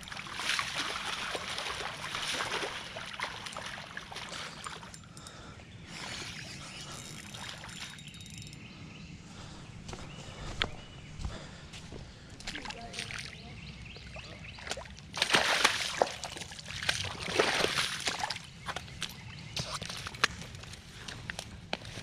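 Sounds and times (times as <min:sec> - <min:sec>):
fish splashing in shallow water: 0:00.0 - 0:04.9, 0:14.6 - 0:19.0.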